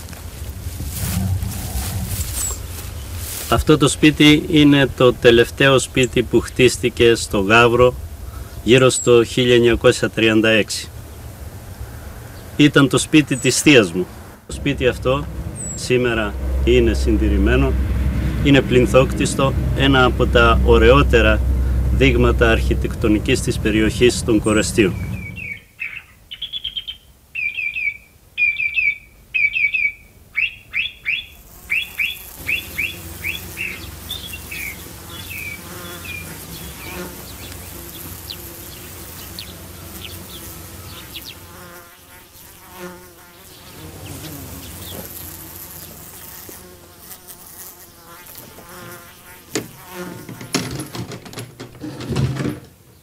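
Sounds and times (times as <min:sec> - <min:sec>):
bees buzzing: 0:00.0 - 0:25.6, 0:30.8 - 0:52.3
bird chirping: 0:01.0 - 0:03.2, 0:14.8 - 0:16.8, 0:24.0 - 0:46.5.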